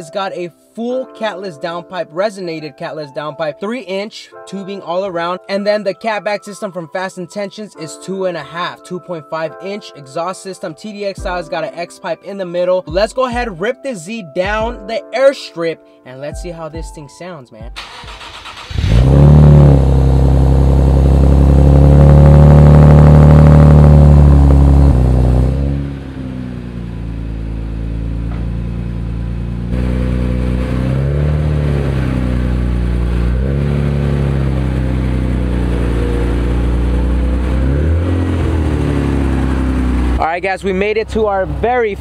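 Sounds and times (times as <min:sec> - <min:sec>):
car engine idling: 0:17.8 - 0:42.0.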